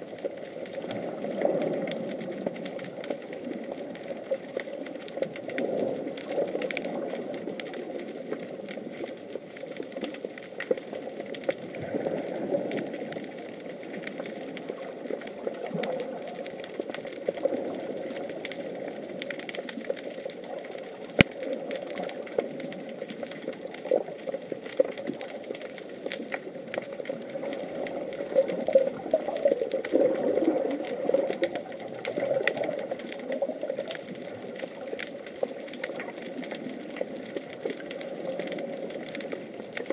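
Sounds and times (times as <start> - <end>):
small crackling clicks: 0.0 - 39.9
underwater water noise: 0.0 - 39.9.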